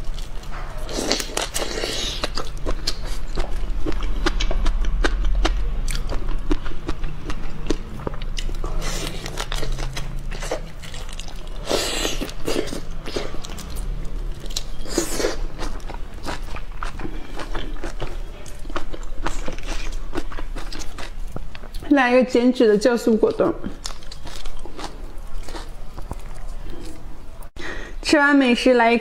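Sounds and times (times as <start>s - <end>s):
chewing crunchy shrimp shells: 0.0s - 21.9s, 23.6s - 27.1s
wet chewing bursts: 0.0s - 21.9s.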